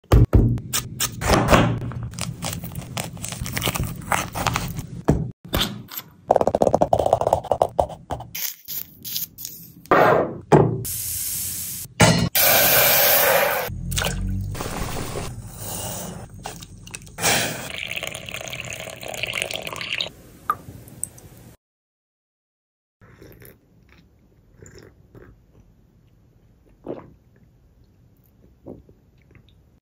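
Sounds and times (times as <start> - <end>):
sipping and swallowing tea: 16.2 - 20.1, 23.0 - 25.7, 26.5 - 27.6.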